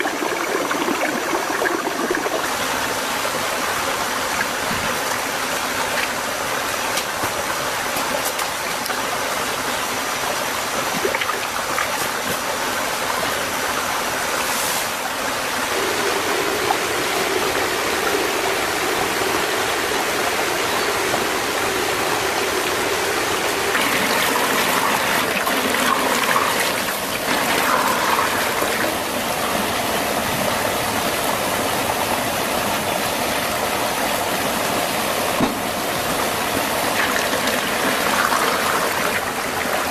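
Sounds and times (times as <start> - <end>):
stream rushing over stones: 0.0 - 39.9.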